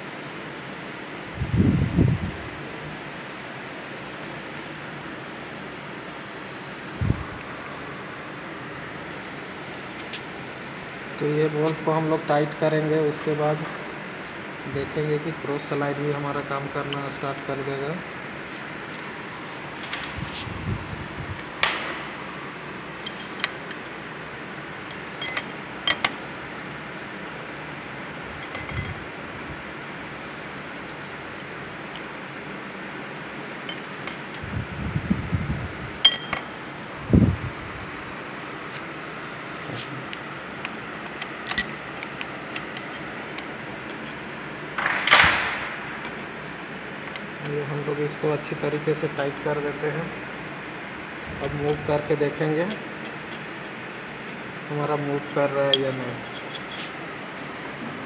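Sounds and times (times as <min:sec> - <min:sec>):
steady background hiss: 0:00.0 - 0:58.0
allen key clinking on metal: 0:23.0 - 0:23.9, 0:24.9 - 0:26.3, 0:28.4 - 0:29.1, 0:33.7 - 0:34.4, 0:36.0 - 0:36.6, 0:41.0 - 0:44.2, 0:55.2 - 0:56.9.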